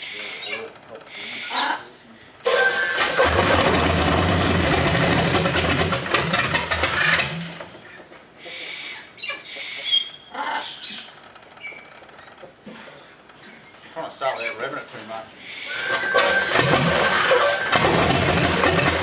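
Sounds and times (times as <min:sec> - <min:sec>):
faint chirps and squeaks: 0:00.0 - 0:01.8, 0:09.2 - 0:14.9
radial aircraft engine running: 0:02.5 - 0:07.3, 0:15.9 - 0:19.0.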